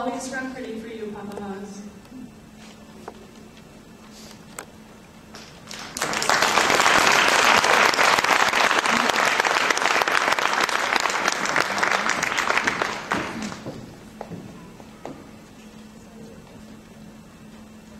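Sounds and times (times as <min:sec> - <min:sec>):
audience applauding: 0:05.3 - 0:14.3.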